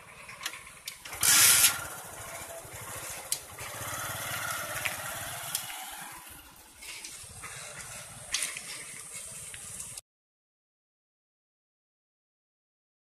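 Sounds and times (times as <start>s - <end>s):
motorcycle riding past: 0.0s - 6.6s
vehicle engines running: 0.0s - 10.0s.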